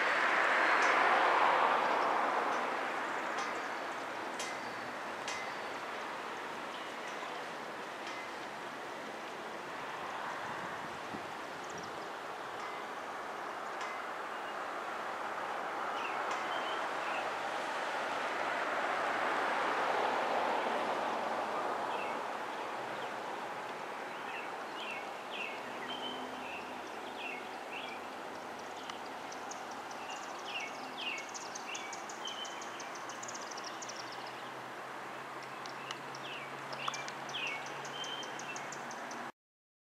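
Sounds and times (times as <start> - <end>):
rushing noise: 0.0 - 25.2
steady background noise: 0.0 - 39.3
small birds chirping: 24.0 - 34.6, 35.4 - 39.3.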